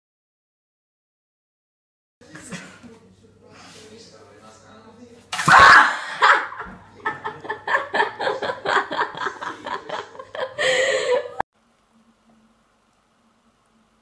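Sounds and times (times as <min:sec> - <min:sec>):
person laughing in bursts: 0:05.5 - 0:11.4.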